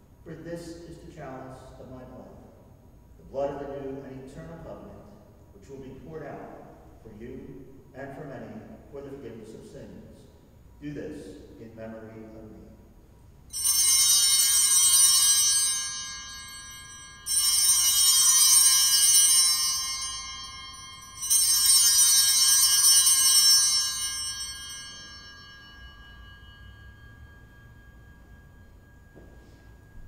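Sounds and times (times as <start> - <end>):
altar bells ringing: 13.5 - 30.0.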